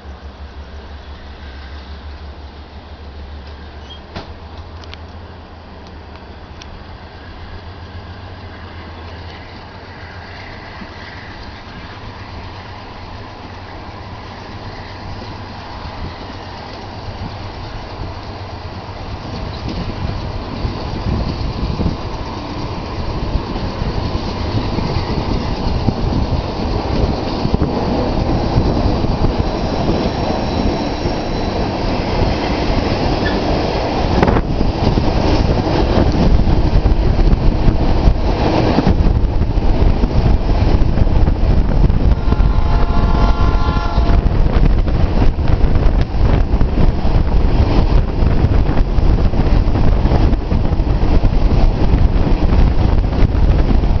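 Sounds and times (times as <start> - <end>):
train wheels on rails: 0.0 - 54.0
train horn: 41.8 - 44.7.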